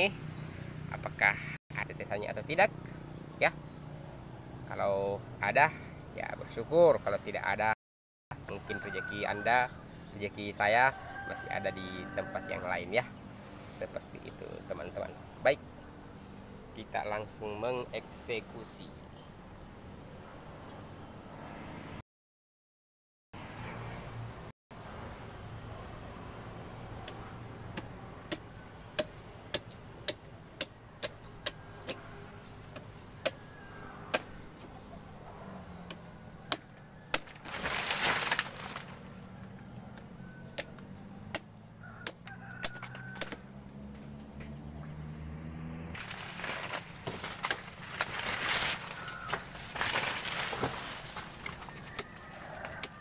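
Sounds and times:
blade chopping a stalk: 27.0s - 34.8s, 35.8s - 39.0s, 39.9s - 44.6s, 45.5s - 53.0s
palm fronds rustling: 37.0s - 39.6s, 44.0s - 53.0s.

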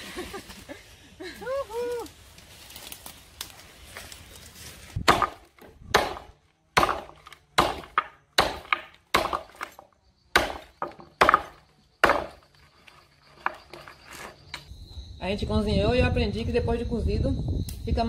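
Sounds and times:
chopping blows on wood: 5.0s - 9.6s, 10.4s - 12.4s.

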